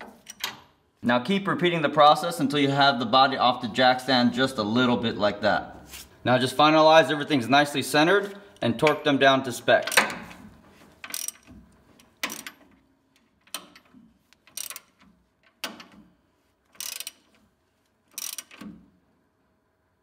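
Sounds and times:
torque wrench ratcheting: 11.1 - 11.6, 14.5 - 15.0, 16.8 - 17.3, 18.1 - 18.7.

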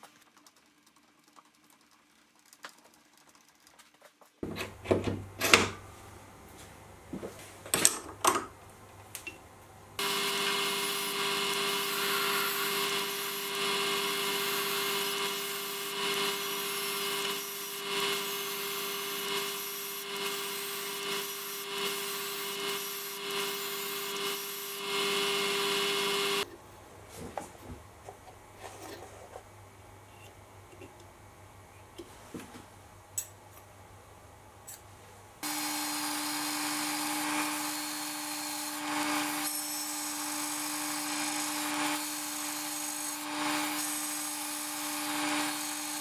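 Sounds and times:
metal lathe humming: 10.0 - 26.4, 35.4 - 46.0.

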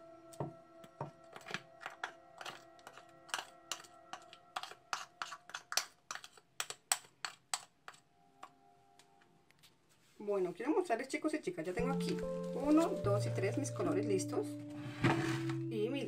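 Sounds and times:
soft background music: 0.0 - 5.5, 10.2 - 16.0
spoon scraping plastic bowl: 1.2 - 8.1.

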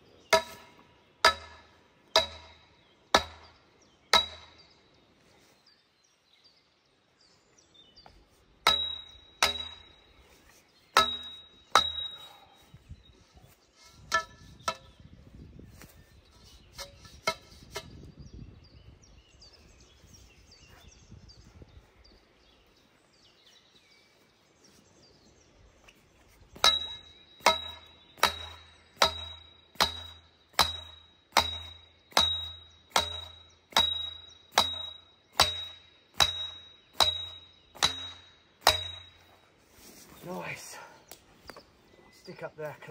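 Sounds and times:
sledgehammer clanging on steel pole: 0.3 - 3.5, 4.2 - 4.7, 8.6 - 10.1, 11.0 - 12.5, 13.8 - 15.0, 16.7 - 18.0, 26.6 - 39.4.

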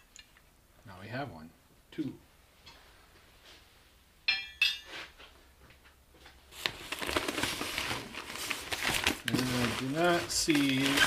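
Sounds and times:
packing peanuts rustling: 6.5 - 11.0.

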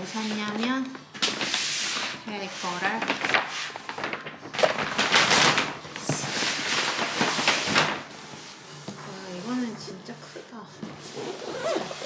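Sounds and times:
paper bag rustling: 0.0 - 9.6.

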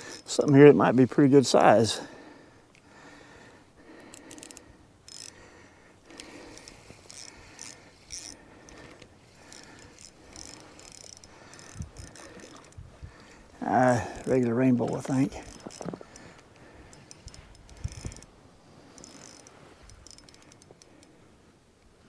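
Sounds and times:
fishing reel clicking and ratcheting: 0.0 - 0.8, 3.9 - 18.3, 18.9 - 21.2.

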